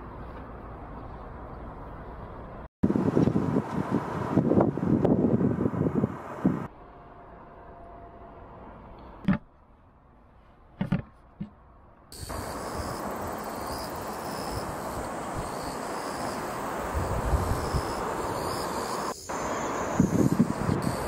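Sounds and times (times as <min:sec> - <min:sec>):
wind rumble on microphone: 0:01.0 - 0:06.7, 0:16.6 - 0:19.1, 0:19.7 - 0:21.0
sharp knocks: 0:10.8 - 0:11.6
insects chirping: 0:12.1 - 0:21.0
outdoor hiss: 0:12.1 - 0:21.0.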